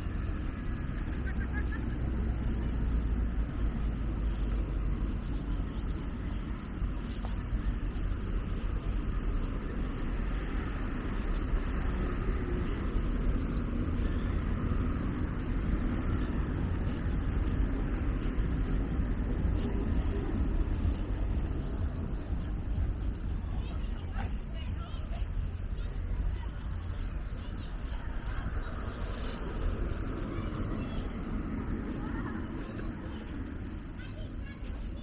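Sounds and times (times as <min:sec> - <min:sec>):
road traffic passing: 0:00.0 - 0:35.0.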